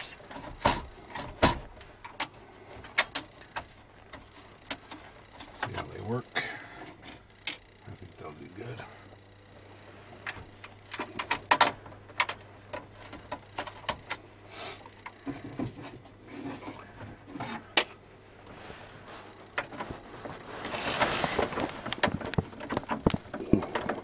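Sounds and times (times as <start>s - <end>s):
plastic rubbing: 18.4s - 24.0s.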